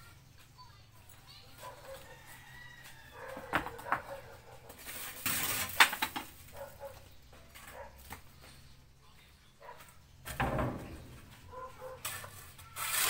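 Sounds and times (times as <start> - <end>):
faint animal sounds: 0.0 - 5.0, 6.5 - 10.2
rasping scrape: 11.5 - 13.0.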